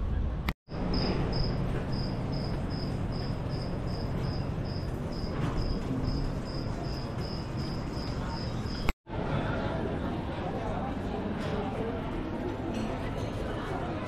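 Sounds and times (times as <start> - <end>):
cricket chirping: 0.7 - 8.9.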